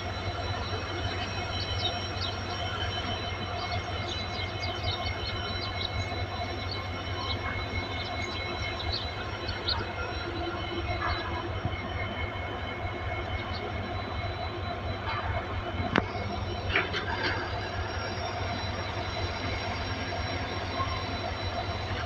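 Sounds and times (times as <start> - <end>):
heavy engine rumbling: 0.0 - 22.0
high whine: 0.0 - 22.0.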